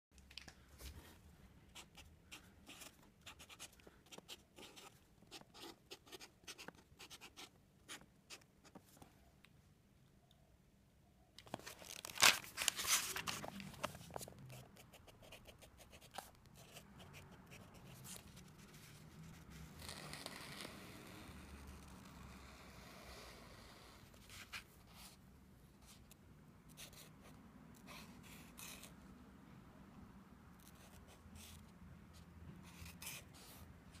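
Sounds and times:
marker scratching on cardboard: 1.8 - 8.8
paper rustling: 11.4 - 14.5.

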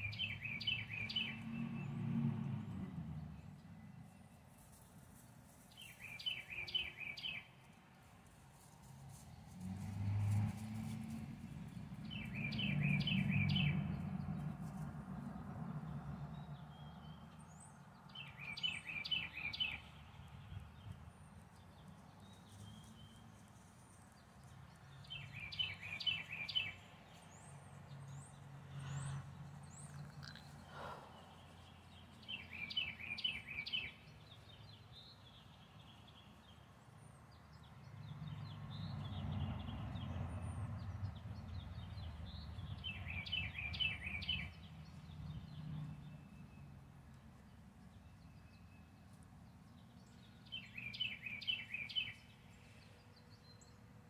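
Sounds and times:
vehicle passing: 0.0 - 4.7, 8.7 - 36.2, 37.1 - 47.6
songbird singing: 0.0 - 8.0, 9.1 - 54.0
road traffic rumble: 0.0 - 54.0.

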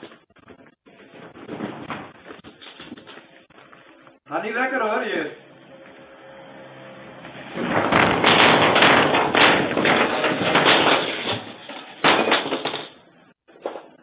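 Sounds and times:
loud crackling clattering noise: 5.7 - 14.0.

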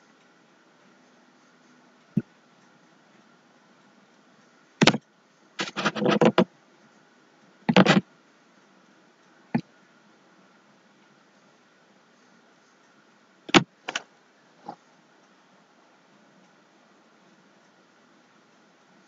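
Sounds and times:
faint steady hum: 0.0 - 19.0
sharp clicks and knocks: 4.8 - 6.5, 7.7 - 8.1, 13.5 - 14.8.

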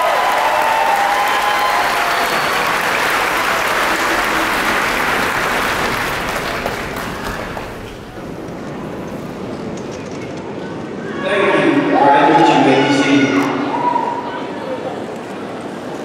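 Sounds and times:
crowd applauding: 0.0 - 8.4.

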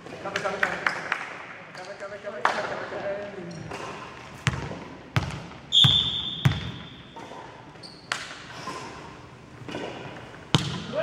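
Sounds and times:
volleyball bouncing on floor: 4.4 - 6.8, 10.5 - 11.0
referee's whistle: 5.7 - 7.0.

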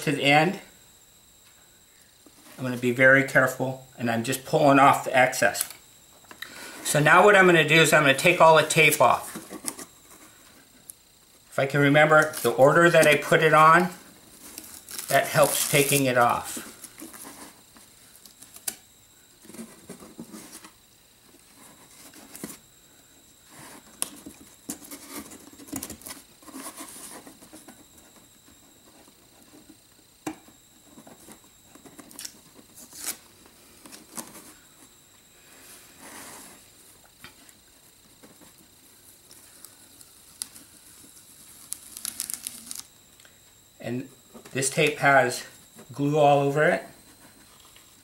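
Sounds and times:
tape being peeled: 14.3 - 16.2, 31.8 - 34.4, 39.2 - 42.9.

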